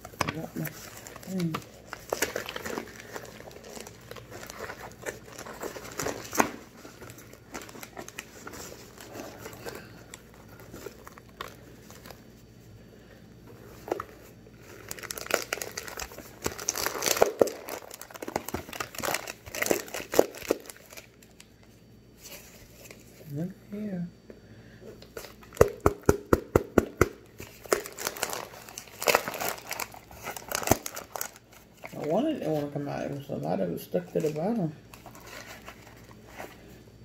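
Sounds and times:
cardboard box crinkling: 0.0s - 12.2s, 13.7s - 21.2s, 27.4s - 33.2s, 34.0s - 36.6s
packed starch crunching: 14.6s - 21.3s, 25.2s - 32.8s.

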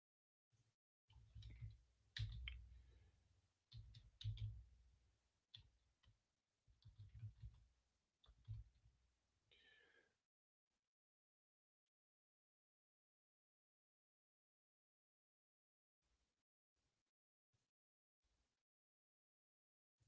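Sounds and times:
keyboard typing: 1.2s - 2.8s, 3.7s - 4.8s, 6.8s - 7.6s, 8.2s - 8.8s.

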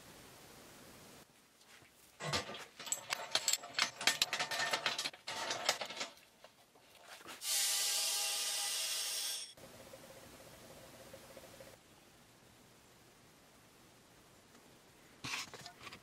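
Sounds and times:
metal clamps clicking and clattering: 2.2s - 6.6s.

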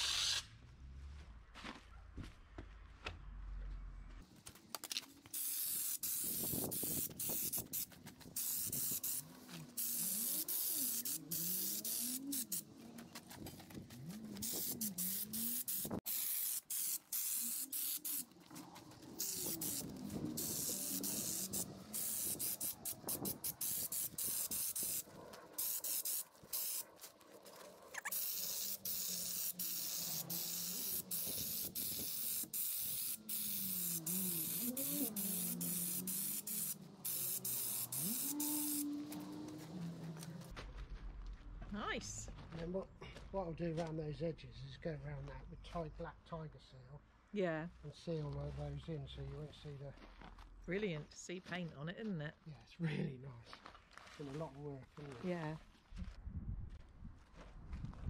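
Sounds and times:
spray gun air hissing in bursts: 5.3s - 12.6s, 14.4s - 18.3s, 19.2s - 25.0s, 25.6s - 26.8s, 28.1s - 39.2s.

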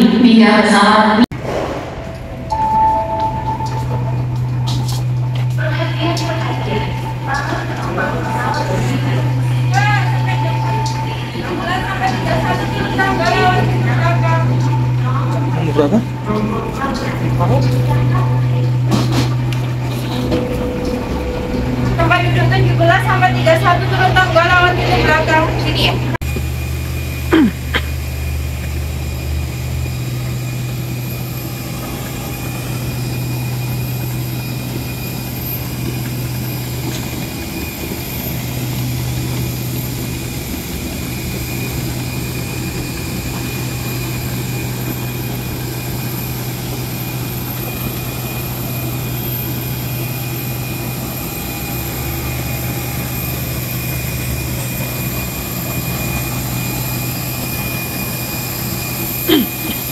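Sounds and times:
jet aircraft hum and whine: 0.0s - 59.9s
short falling tone: 1.4s - 5.7s.

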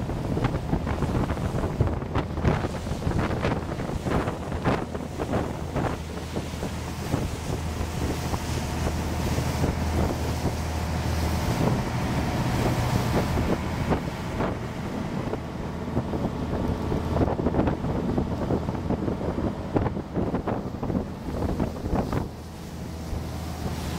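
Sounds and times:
boat engine droning: 0.0s - 23.9s
water rushing from wake: 0.0s - 23.9s
wind buffeting microphone: 0.0s - 23.9s.

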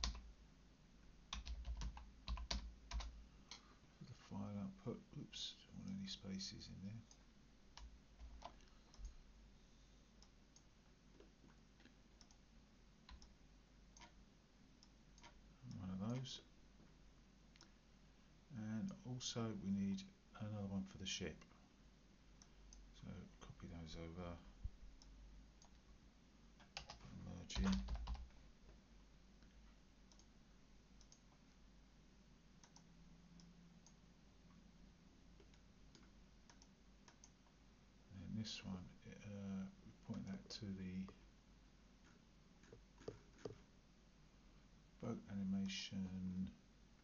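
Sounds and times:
faint computer mouse clicks: 29.4s - 30.3s, 32.6s - 34.0s, 35.4s - 37.4s.

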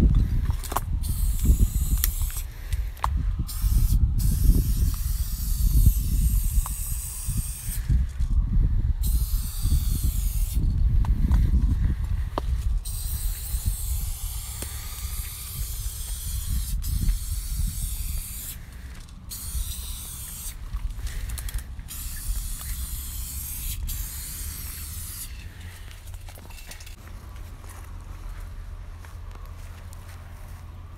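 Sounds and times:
spray paint can hissing: 1.0s - 2.6s, 3.5s - 7.9s, 9.0s - 10.8s, 12.8s - 27.0s.

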